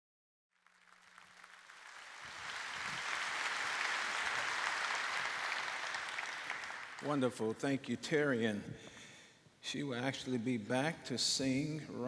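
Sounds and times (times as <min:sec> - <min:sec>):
congregation applauding: 0:00.6 - 0:07.9.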